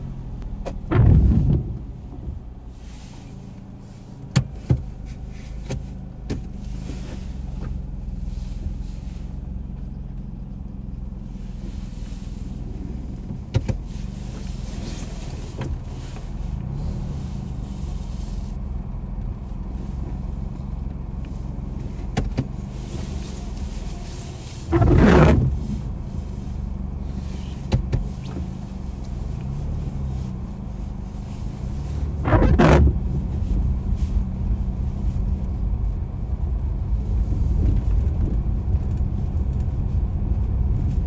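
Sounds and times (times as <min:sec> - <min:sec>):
car engine running: 0:00.0 - 0:41.0
sharp clicks and knocks: 0:00.4 - 0:02.3.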